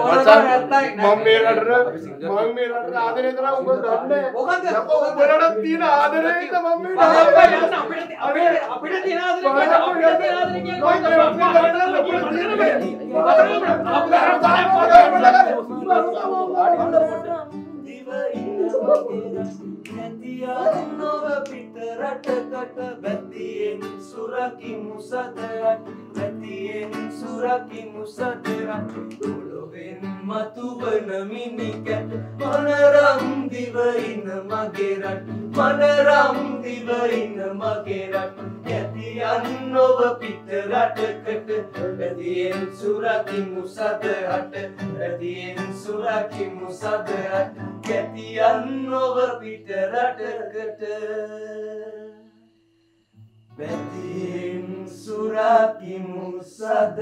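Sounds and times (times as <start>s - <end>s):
man singing: 0.0s - 1.7s, 6.8s - 52.3s, 53.6s - 57.0s
acoustic guitar strumming: 7.0s - 8.2s, 9.6s - 50.3s, 52.5s - 55.8s.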